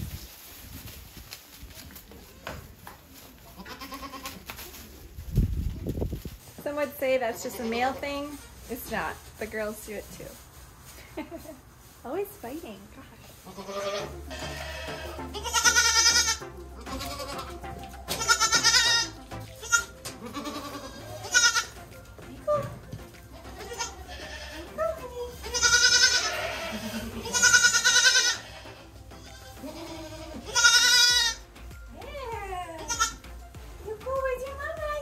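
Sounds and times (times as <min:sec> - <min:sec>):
goats bleating: 0:03.6 - 0:04.4, 0:13.4 - 0:21.9, 0:23.3 - 0:31.4, 0:32.4 - 0:33.2.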